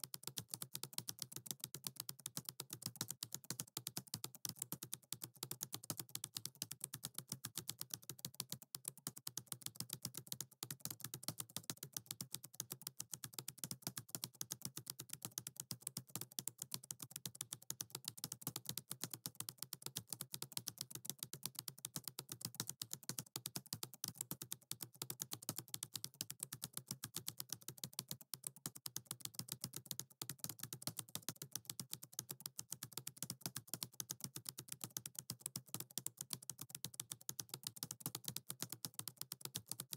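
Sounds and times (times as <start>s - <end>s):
keyboard typing: 13.3s - 39.9s.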